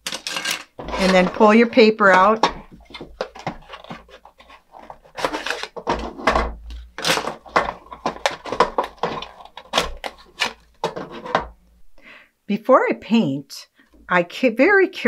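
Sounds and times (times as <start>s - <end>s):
plastic toy parts clacking: 0.0s - 11.5s.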